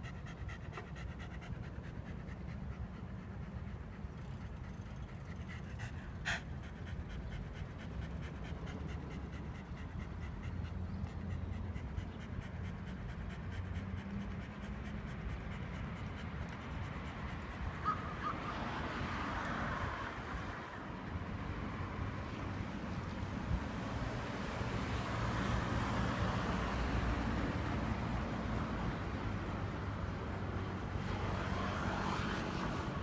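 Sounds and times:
dog panting: 0.0s - 18.2s.

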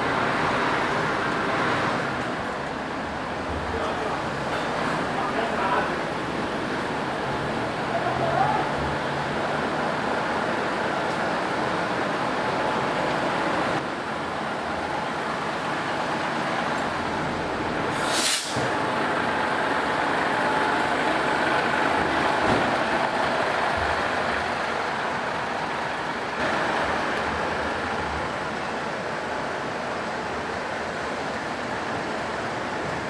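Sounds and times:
diesel engine idling: 0.0s - 33.0s
short hiss of air: 17.9s - 18.8s.

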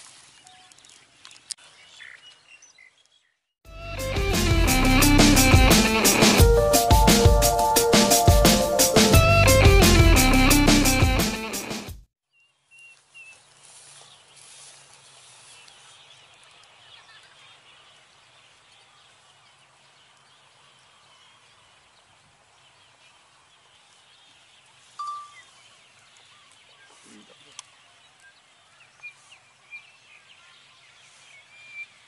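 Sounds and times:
music: 3.7s - 12.1s
faint bird chirps: 24.8s - 32.0s.

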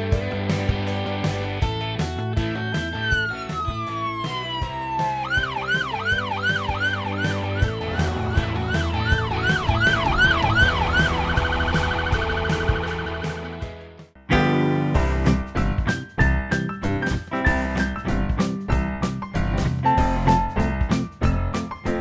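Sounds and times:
music with steady beat: 0.0s - 22.0s
police car siren: 2.4s - 13.7s.

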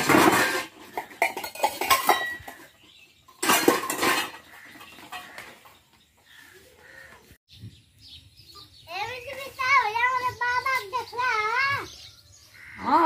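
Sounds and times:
steel dishes clattering: 0.0s - 5.6s.

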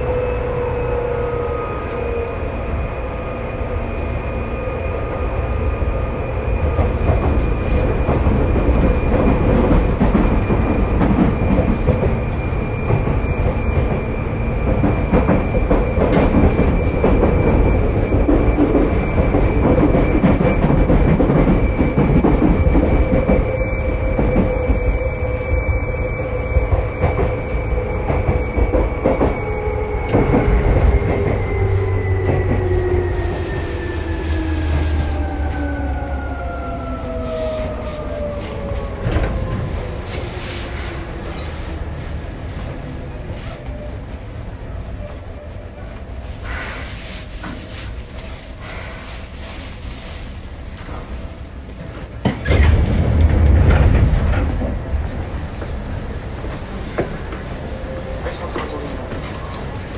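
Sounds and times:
wheel and rail rumble: 0.0s - 59.9s
rail joint clacks: 6.6s - 25.2s, 51.7s - 59.9s.

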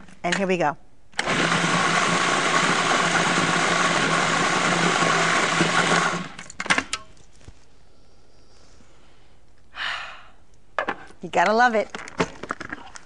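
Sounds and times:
food processor running: 1.2s - 6.4s.

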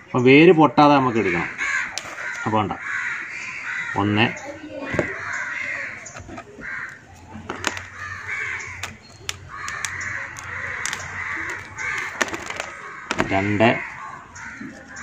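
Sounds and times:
crows cawing: 0.0s - 15.0s
roots crackling being pulled apart: 6.4s - 13.9s.

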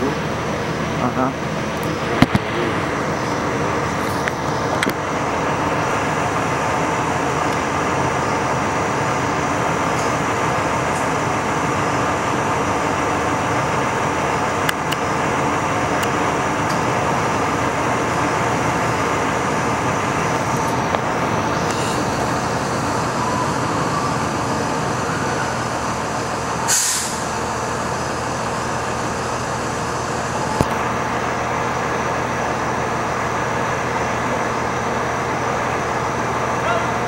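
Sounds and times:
diesel engine idling: 0.0s - 37.0s
sharp hiss of air: 26.7s - 27.3s.

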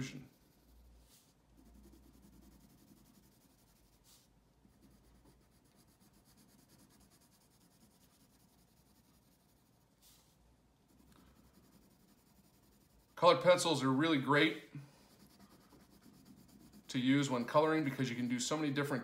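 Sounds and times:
pencil scratching on paper: 0.0s - 18.1s.

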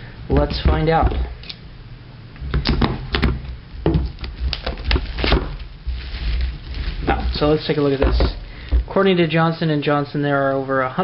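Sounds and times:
plastic wrap crackling and tearing: 3.5s - 8.7s.

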